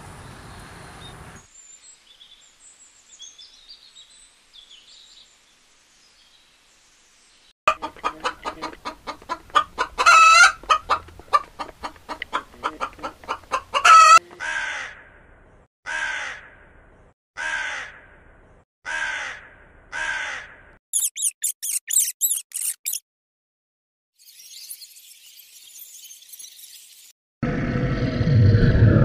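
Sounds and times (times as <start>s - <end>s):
chickens clucking: 7.7s - 14.2s
chicken squawks: 7.7s - 15.0s, 18.9s - 23.0s
rook cawing: 13.8s - 15.2s, 15.9s - 16.7s, 17.4s - 18.2s, 18.8s - 20.7s
rat squeaking: 20.9s - 23.0s.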